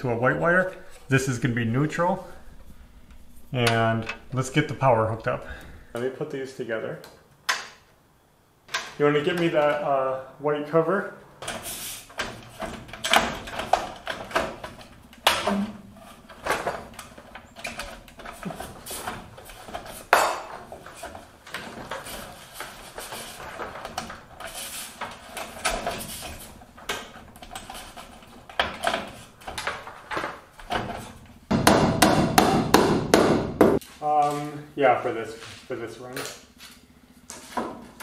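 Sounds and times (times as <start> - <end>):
metal rattling and scraping: 0.0 - 5.9, 11.4 - 31.5.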